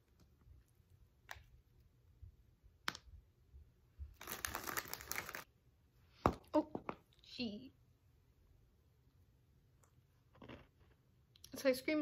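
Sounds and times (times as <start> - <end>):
packaging crinkling and scraping: 4.2 - 5.5.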